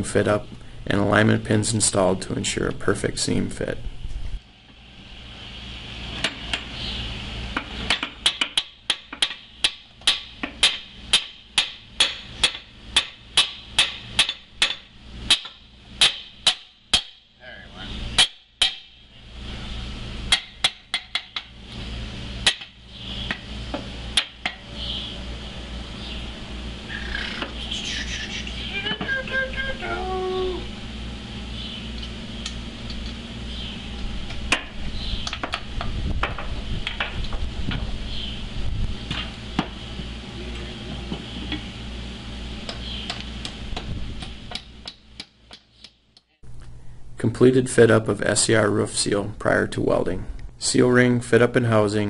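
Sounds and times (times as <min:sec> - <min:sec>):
steady low hum: 0:00.0 - 0:52.0
hammer striking steel: 0:07.9 - 0:17.3, 0:18.2 - 0:19.0.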